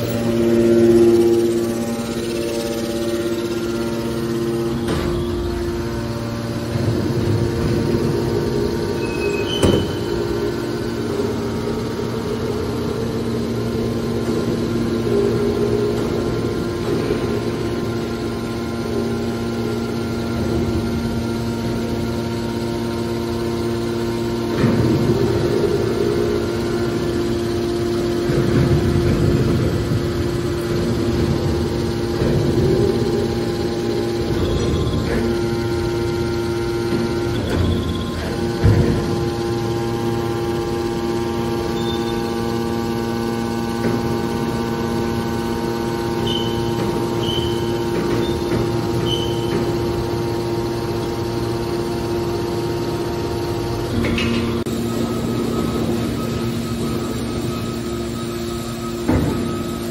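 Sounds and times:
hydraulic pump motor humming: 0.0 - 59.9.

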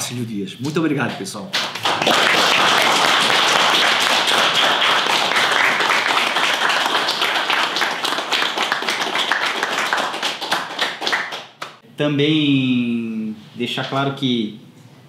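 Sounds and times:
small audience applauding: 1.5 - 11.8.

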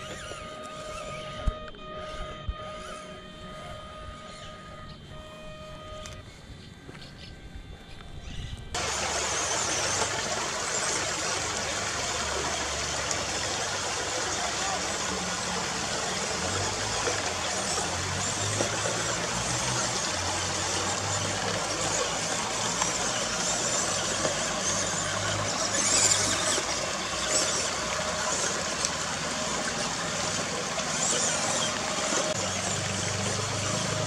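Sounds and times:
toy truck motor whining: 0.0 - 6.4, 8.2 - 34.0
running water: 8.8 - 34.0.

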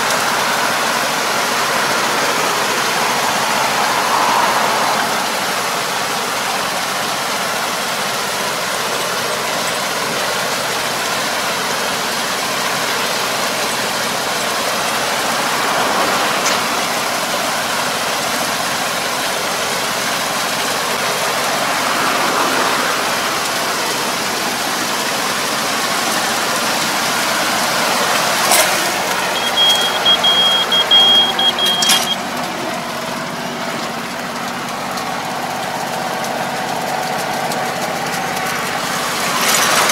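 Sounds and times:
harrow churning water and mud: 0.0 - 39.9
tractor engine running: 0.0 - 39.9
high beep: 29.2 - 32.2.

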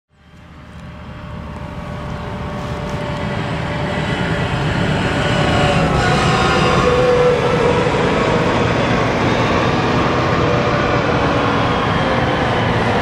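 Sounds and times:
combine harvester drone and whine: 0.1 - 13.0.

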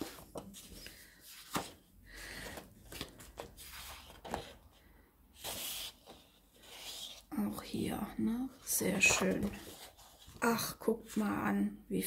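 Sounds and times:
paper rustling: 0.0 - 4.8, 5.4 - 7.7, 8.6 - 10.6
paper sliding rustle: 0.0 - 4.8, 5.4 - 7.3, 8.8 - 10.5.

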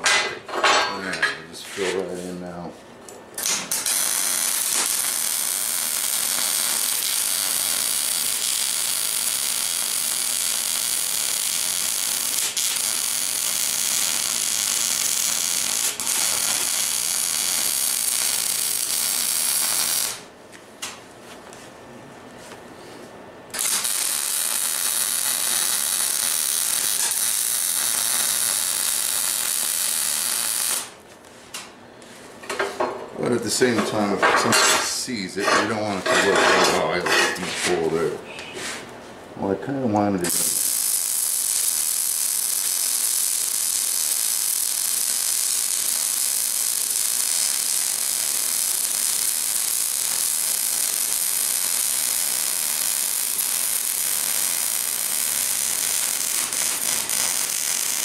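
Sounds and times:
welder arc crackling: 3.4 - 20.3, 23.5 - 31.2, 40.2 - 58.0.

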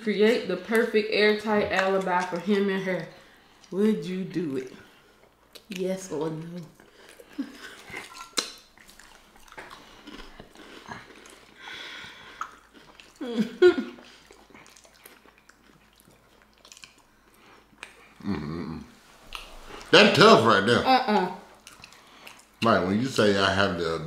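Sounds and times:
chewing and mouth smacks: 1.6 - 3.8, 4.4 - 18.3, 19.3 - 19.9, 21.5 - 22.6
short vocal sound: 18.2 - 19.0.

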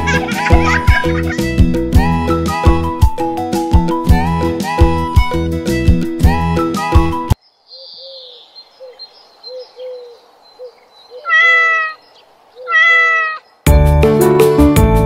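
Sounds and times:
soft bird chirps: 7.4 - 13.7
cat meowing: 11.2 - 12.0, 12.6 - 13.4.

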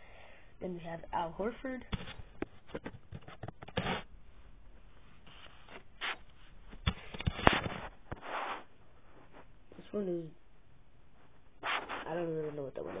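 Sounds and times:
rubbing and scraping: 1.9 - 4.2, 4.8 - 9.9, 11.2 - 13.0.

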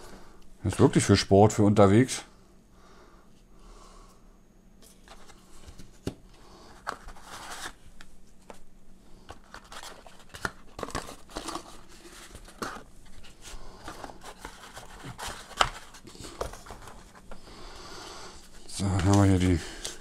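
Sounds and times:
cardboard and paper rustling: 4.8 - 8.6, 9.2 - 17.5, 18.4 - 20.0.

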